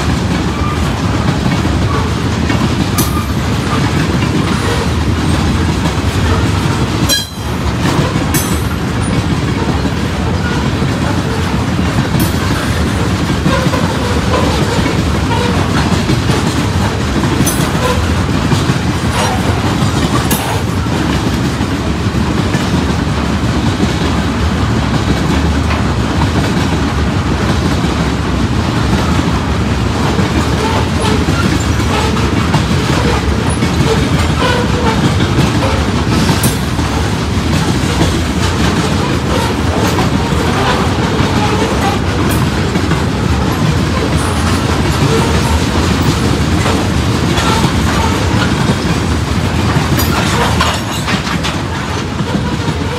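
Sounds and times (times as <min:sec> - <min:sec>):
train wheels rumbling on rail: 0:00.0 - 0:52.9
wheels clicking over rail joints: 0:00.0 - 0:52.9.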